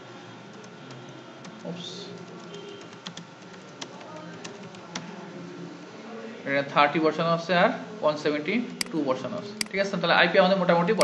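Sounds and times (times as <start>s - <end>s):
keyboard typing: 0.5s - 5.2s.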